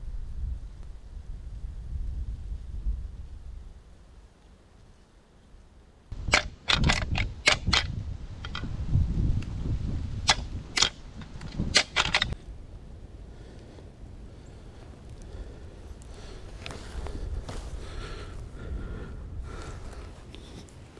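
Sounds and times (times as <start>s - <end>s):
antlers clacking and grinding: 6.2s - 8.7s, 10.3s - 12.4s.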